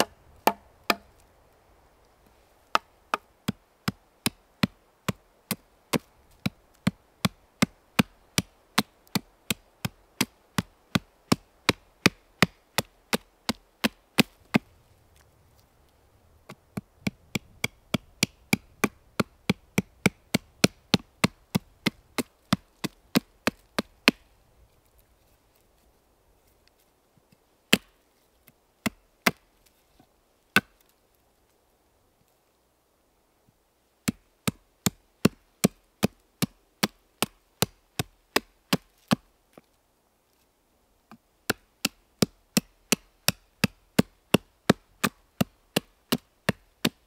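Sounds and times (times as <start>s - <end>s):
wood chopping blows: 0.0s - 1.2s, 16.4s - 24.3s.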